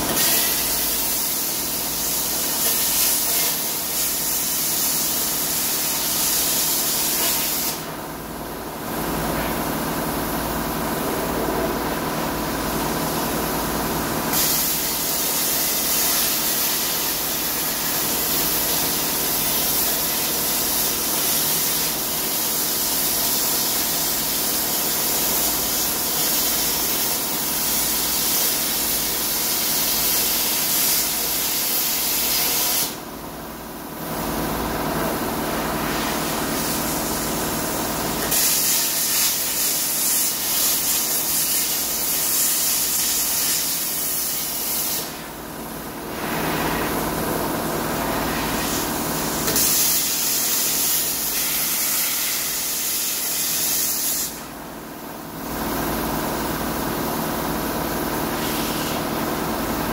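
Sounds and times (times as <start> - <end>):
plasma cutter hissing: 0.1 - 7.9, 14.3 - 33.0, 35.8 - 37.2, 38.2 - 45.3, 48.1 - 54.5, 58.4 - 59.0.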